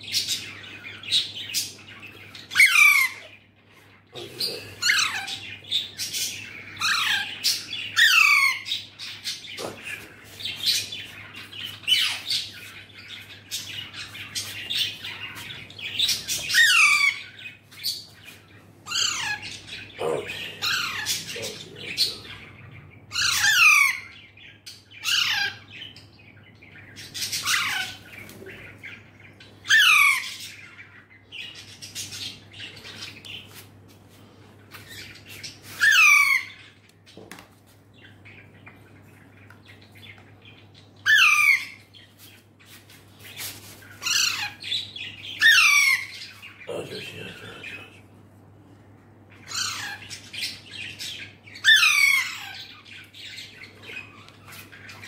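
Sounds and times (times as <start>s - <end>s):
baby parakeets squawking: 0.0s - 26.0s, 26.8s - 33.6s, 34.7s - 36.8s, 40.0s - 48.0s, 49.3s - 55.0s.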